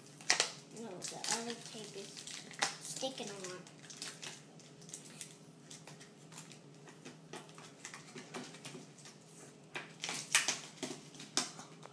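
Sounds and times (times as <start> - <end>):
plastic packet crinkling: 0.1 - 6.7.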